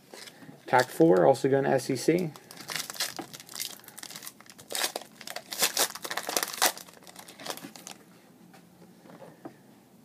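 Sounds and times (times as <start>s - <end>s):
foil wrapper tearing and crinkling: 2.4s - 8.0s.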